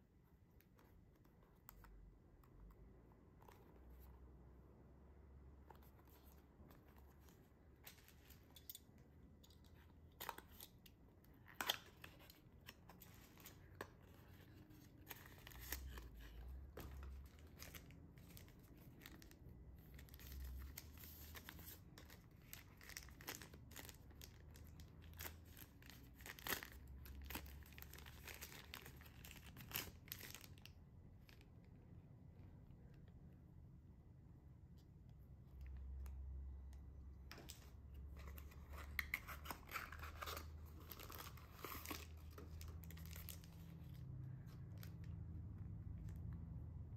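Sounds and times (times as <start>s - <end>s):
packaging crinkling and rustling: 9.7s - 31.5s, 37.3s - 45.2s.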